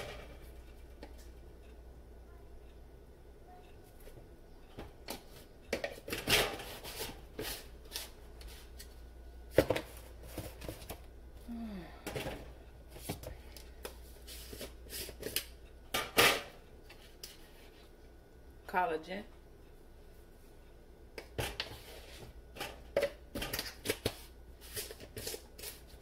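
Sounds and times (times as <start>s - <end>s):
kitchen items clicking and tapping: 4.8s - 7.2s, 22.5s - 25.8s.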